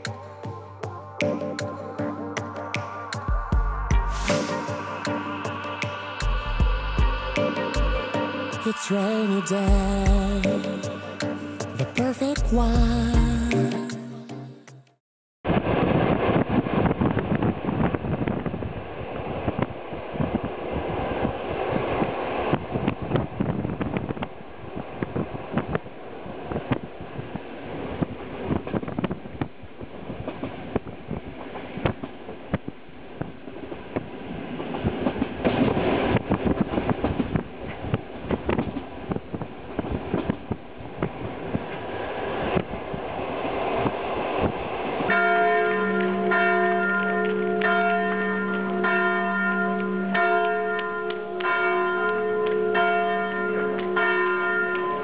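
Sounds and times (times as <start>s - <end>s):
deep bell: 1.2s - 8.8s, 45.1s - 55.0s
church bells ringing: 44.7s - 55.0s.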